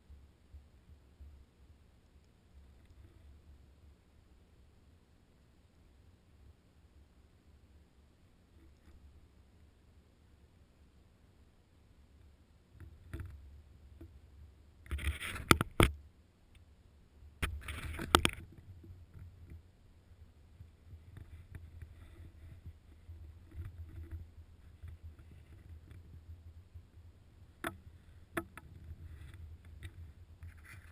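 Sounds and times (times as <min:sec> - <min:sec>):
rustling with sharp knocks: 0:14.8 - 0:16.0, 0:17.4 - 0:19.6, 0:20.5 - 0:30.9.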